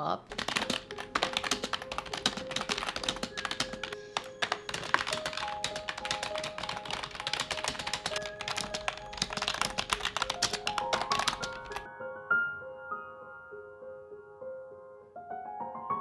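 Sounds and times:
soft background music: 0.0 - 16.0
fast typing on keyboard: 0.3 - 11.9.

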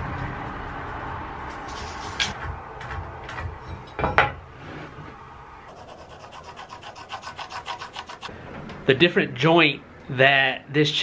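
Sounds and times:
pencil scratching on wood: 5.7 - 8.3.

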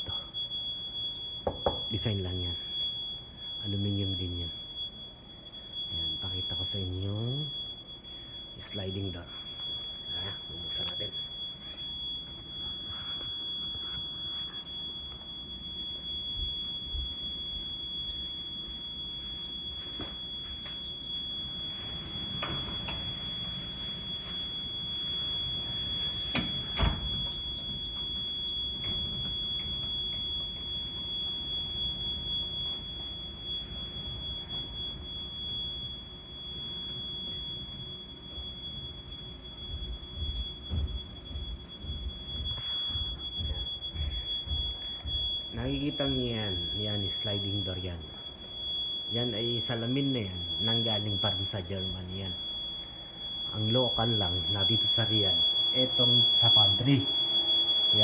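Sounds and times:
high-pitched electronic tone: 10.1 - 15.3.

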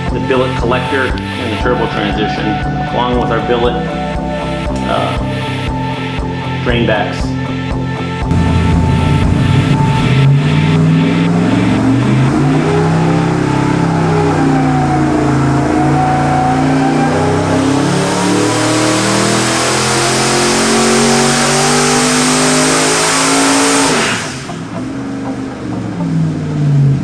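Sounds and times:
engine running under full load: 7.7 - 27.0.

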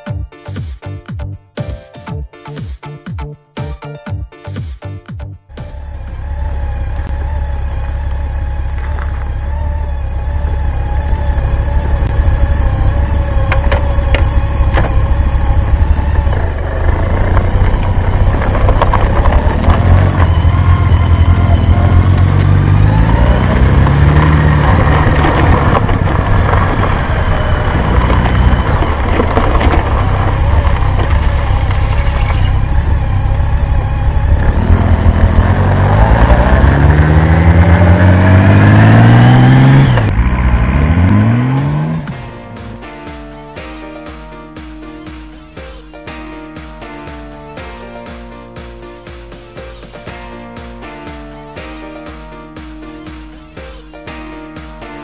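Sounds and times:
motorcycle engine idling and accelerating: 3.6 - 55.0
road and wind noise: 5.5 - 45.4.

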